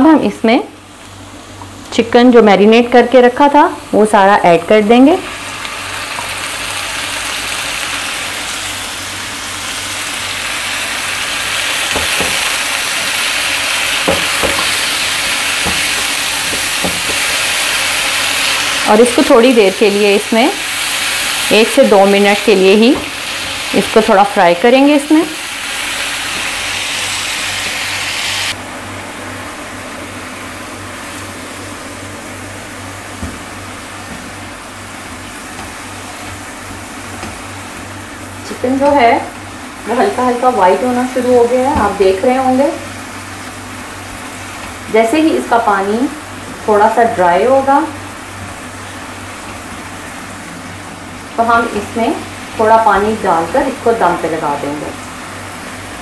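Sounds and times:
chicken sizzling in hot oil: 4.7s - 28.6s
spatula knocking against pan: 14.0s - 14.7s, 15.6s - 17.4s.

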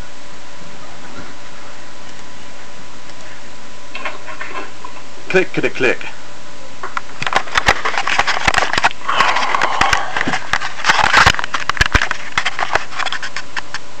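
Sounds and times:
scraping rustles: 7.1s - 13.9s.

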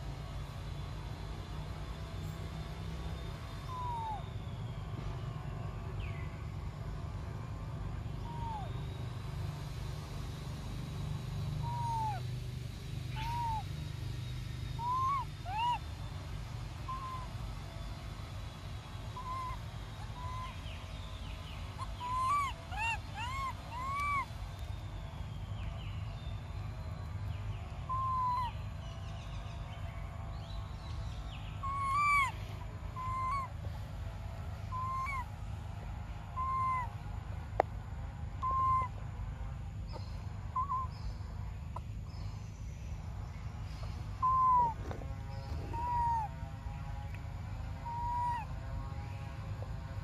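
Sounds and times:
infant monkey whimpering coos: 3.6s - 4.3s, 8.2s - 8.9s, 11.6s - 12.3s, 13.2s - 13.7s, 14.8s - 15.9s, 16.9s - 17.3s, 19.2s - 20.6s, 21.8s - 24.3s, 27.9s - 28.5s, 31.6s - 33.6s, 34.7s - 35.3s, 36.4s - 36.9s, 38.4s - 38.9s, 40.6s - 40.9s, 44.2s - 44.8s, 45.7s - 46.4s, 47.8s - 48.5s.

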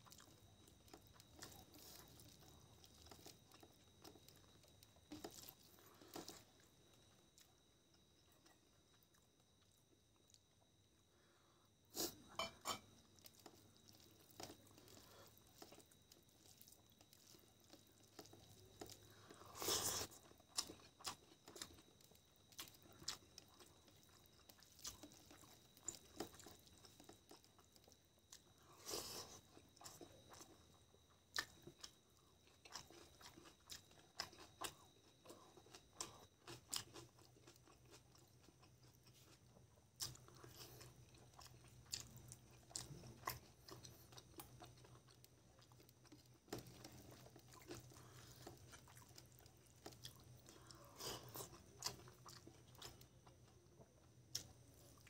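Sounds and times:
fingers squishing rice and curry: 0.0s - 10.5s, 12.0s - 55.0s.

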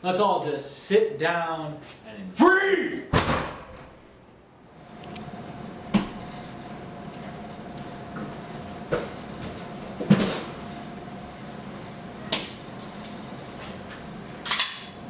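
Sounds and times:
faint high hum: 3.8s - 15.0s.

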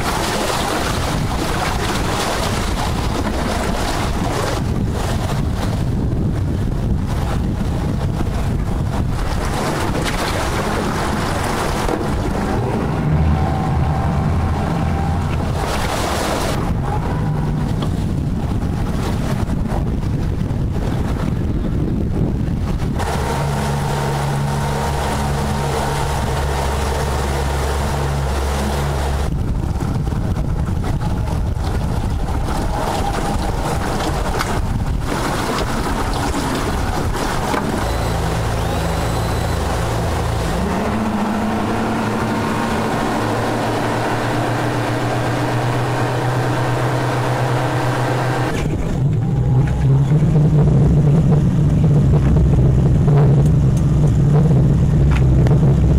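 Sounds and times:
outboard engines running at speed: 0.0s - 55.9s
rushing wind and water: 0.0s - 55.9s.

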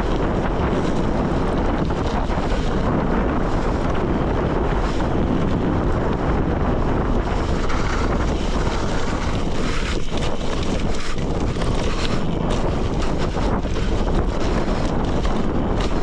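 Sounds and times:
tyres rumbling on dirt road: 0.0s - 16.0s
wind on microphone: 0.0s - 16.0s.

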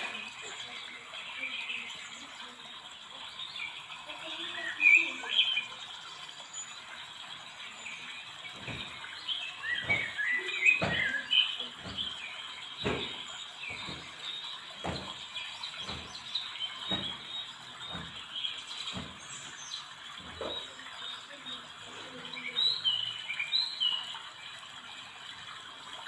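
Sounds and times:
small birds chirping: 0.0s - 25.8s
soft knocks: 8.5s - 9.1s, 9.8s - 12.2s, 12.8s - 19.5s, 20.2s - 20.8s.

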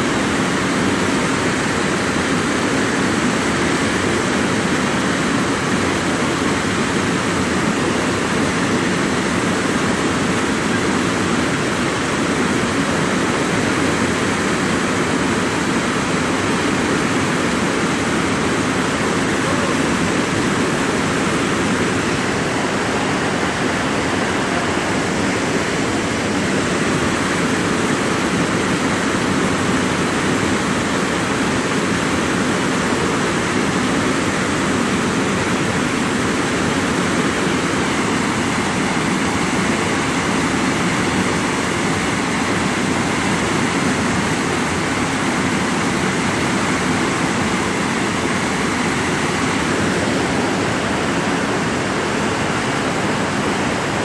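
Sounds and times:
white water rushing over rocks: 0.0s - 54.0s.

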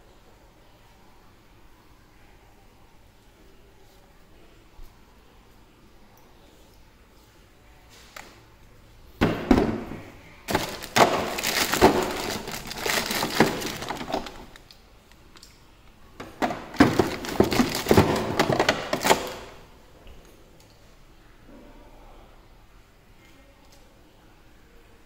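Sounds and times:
plastic wrapping crinkling: 10.5s - 14.8s, 16.4s - 19.6s.

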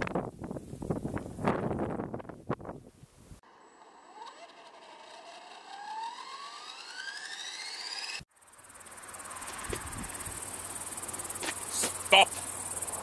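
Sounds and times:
rc helicopter motor whine: 3.4s - 13.0s
crickets chirring: 8.3s - 13.0s.

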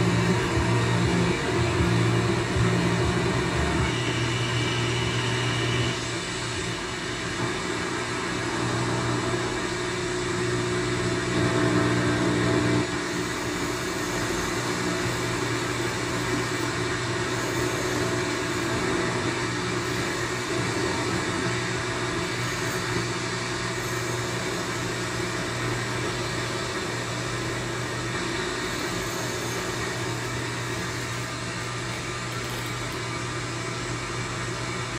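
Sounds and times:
low hum: 0.0s - 11.7s.

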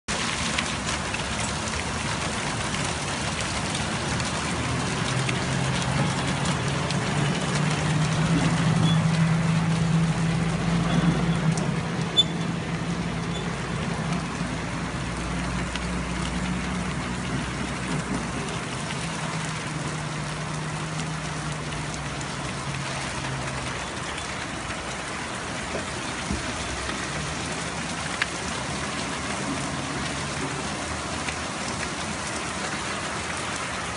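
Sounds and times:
heavy rain on wet pavement: 0.1s - 33.9s
low vehicle engine hum: 0.2s - 33.9s.

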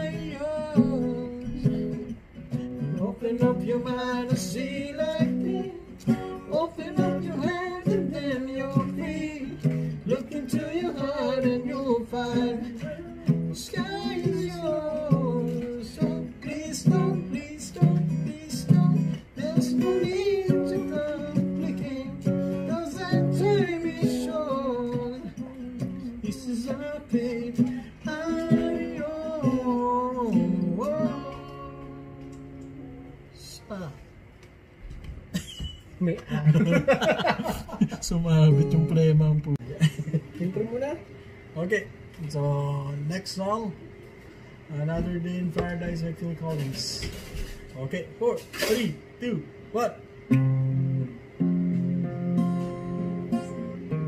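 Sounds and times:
man singing: 0.0s - 32.4s, 38.0s - 39.6s
strummed acoustic guitar: 0.0s - 33.4s, 35.3s - 40.6s, 44.3s - 49.1s, 50.3s - 54.0s.

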